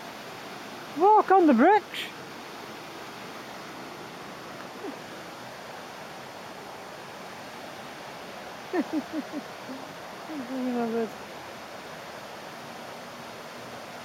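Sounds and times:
flowing river water: 0.0s - 14.0s
man laughing: 8.7s - 9.8s.

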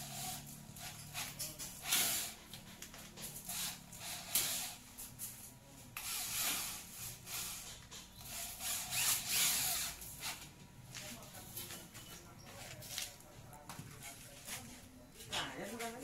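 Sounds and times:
hissing scrapes on steel frame: 0.0s - 2.6s, 3.2s - 10.4s.

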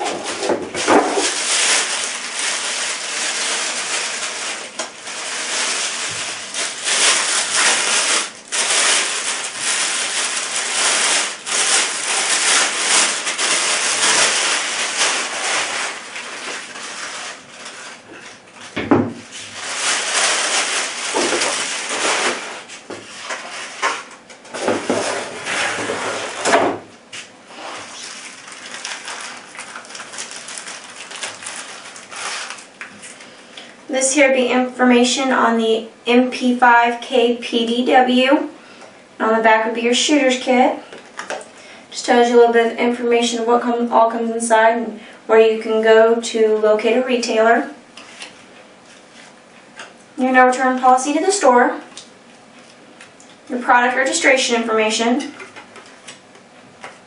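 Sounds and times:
plastic packaging crinkling: 0.0s - 26.0s, 27.8s - 33.3s.

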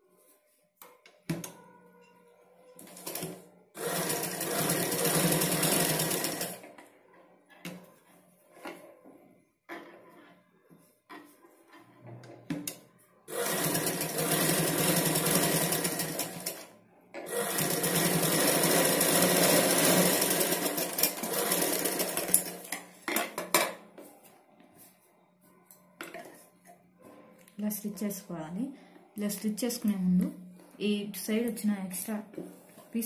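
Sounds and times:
sewing machine stitching: 2.8s - 6.6s, 13.3s - 22.7s.

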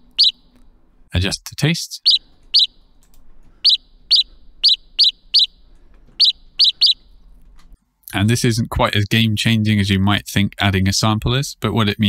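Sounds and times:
synthesized bird chirps: 0.0s - 0.5s, 2.0s - 2.8s, 3.6s - 5.6s, 6.2s - 7.1s.

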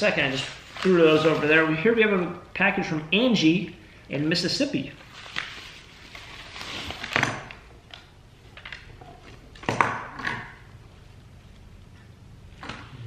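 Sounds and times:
paper mailer rustling: 0.0s - 2.0s.

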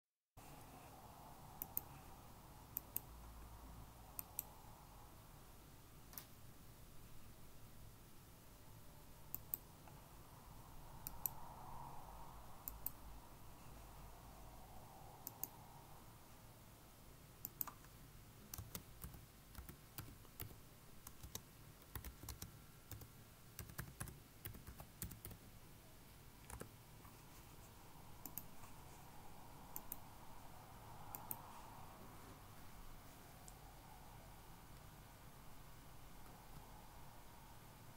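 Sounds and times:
computer mouse clicks: 1.6s - 2.0s, 2.7s - 3.1s, 4.1s - 4.6s, 9.3s - 10.0s, 11.0s - 11.5s, 12.6s - 13.0s, 15.2s - 15.6s, 17.4s - 25.4s, 26.4s - 26.7s, 28.2s - 28.6s, 29.7s - 30.1s, 31.1s - 31.5s
keyboard keystrokes: 18.5s - 25.4s.

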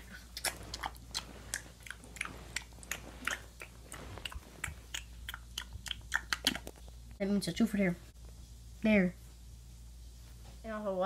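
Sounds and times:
gum chewing with wet smacking: 0.0s - 7.0s.

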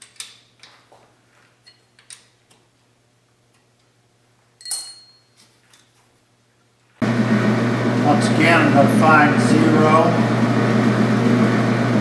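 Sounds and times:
ringing metal clink: 4.6s - 5.4s.

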